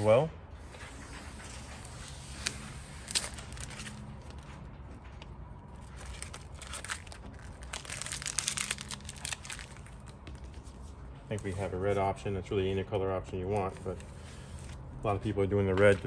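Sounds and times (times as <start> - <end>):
plastic film crinkling: 1.3 - 4.5, 5.7 - 11.7
plastic film snaps: 5.9 - 10.5.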